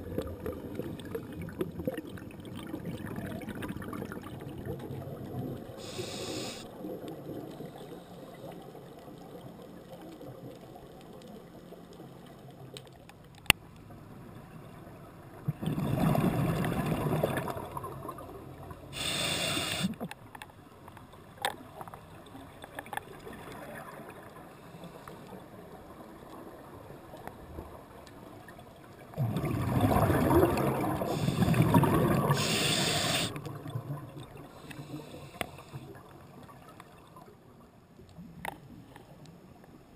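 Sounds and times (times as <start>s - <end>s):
hissing inhalations: 5.8s - 6.7s, 19.0s - 20.0s, 31.1s - 31.7s, 32.3s - 33.4s, 34.6s - 35.9s
underwater regulator bubbling exhalations: 29.2s - 33.4s.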